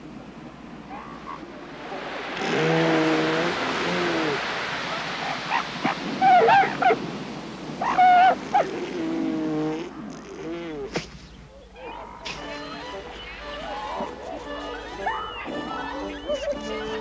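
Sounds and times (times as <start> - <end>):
surf washing: 0.0 - 17.0
elephant seals calling: 0.8 - 1.5, 2.4 - 7.0, 7.8 - 9.2, 9.8 - 17.0.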